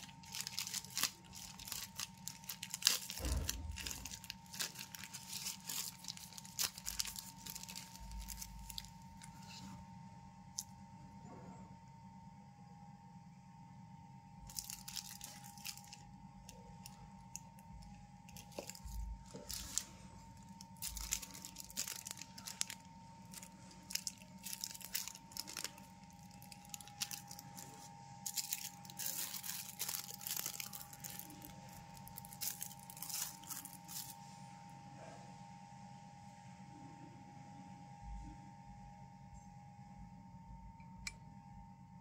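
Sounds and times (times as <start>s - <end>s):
plastic bag crinkling: 0.0s - 9.6s, 14.5s - 34.3s
faint steady hum: 0.0s - 42.0s.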